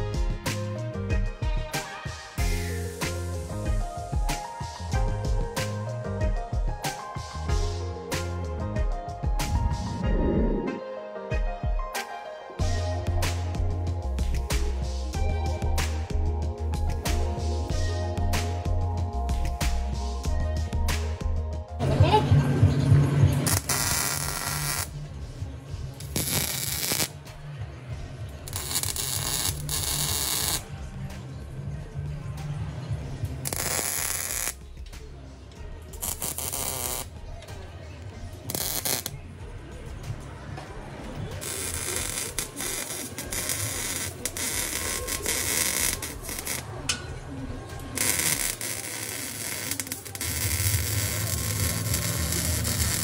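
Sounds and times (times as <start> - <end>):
background music with low beat: 0.0 - 53.0
welder arcing crackling hiss: 2.4 - 4.5, 23.5 - 24.9, 26.0 - 27.1, 28.5 - 30.6, 33.5 - 34.6, 36.0 - 37.1, 38.5 - 39.1, 41.4 - 46.7, 48.0 - 53.0.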